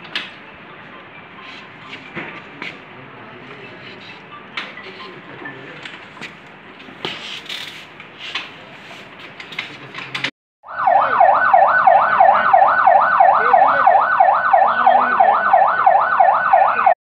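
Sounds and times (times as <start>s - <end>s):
siren yelping: 10.6s - 17.0s.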